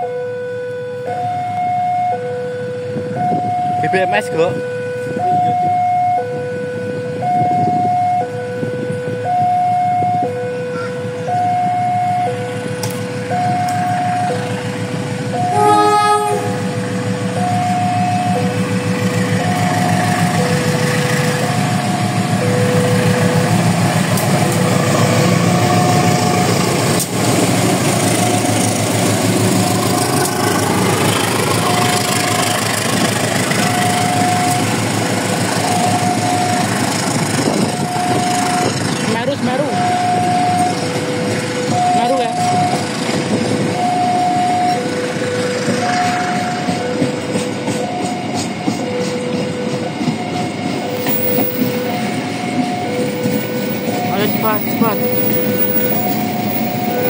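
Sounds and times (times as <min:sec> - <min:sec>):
passing train rumble: 0:00.0 - 0:57.0
level crossing alarm ding-dong: 0:09.2 - 0:25.9, 0:33.5 - 0:34.9, 0:35.6 - 0:36.8, 0:37.6 - 0:43.0, 0:43.7 - 0:57.0
train horn: 0:15.3 - 0:18.4.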